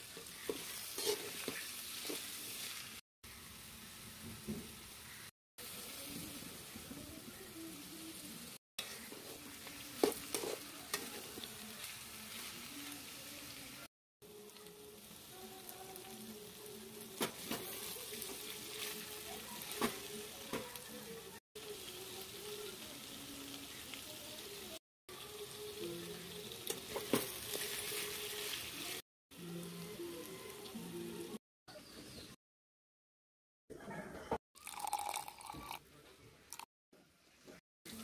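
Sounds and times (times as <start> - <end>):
vegetables sizzling in a pan: 0.0 - 31.4
spatula scraping a metal pan: 0.1 - 2.3.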